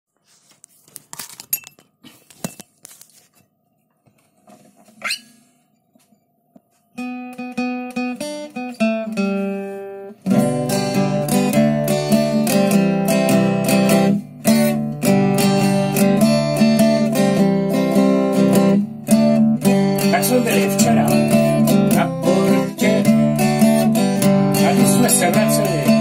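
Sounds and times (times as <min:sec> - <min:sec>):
short rising squeak: 0:05.0 - 0:05.6
acoustic guitar playing: 0:06.9 - 0:26.0.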